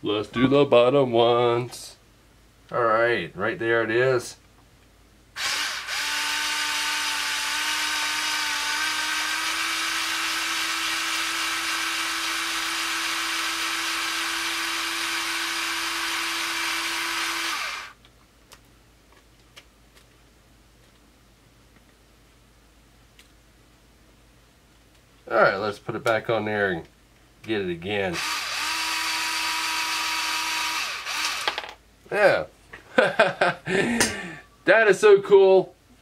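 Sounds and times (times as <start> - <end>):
power screwdriver motor whine: 5.4 - 18.0, 28.2 - 31.7.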